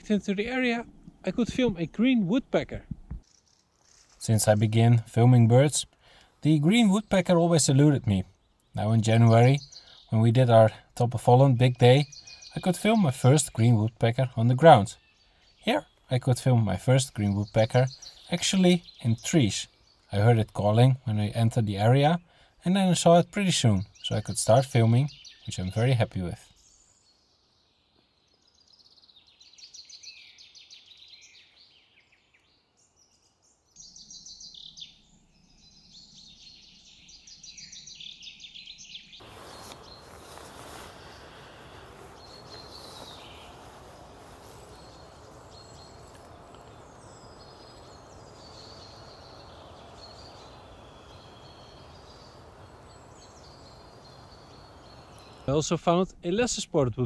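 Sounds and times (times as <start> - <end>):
songbirds singing and calling: 0.0 - 57.0
steady hiss: 39.2 - 56.6.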